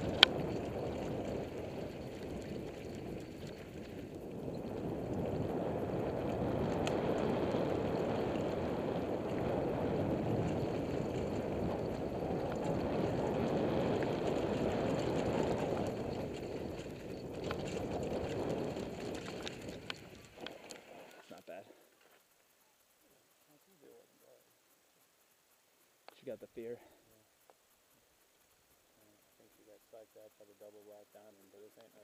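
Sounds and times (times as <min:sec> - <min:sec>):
wind rushing on microphone: 0:00.0 - 0:20.7
bike tyre rumble: 0:00.0 - 0:21.6
faint clicks of stones: 0:15.7 - 0:23.8.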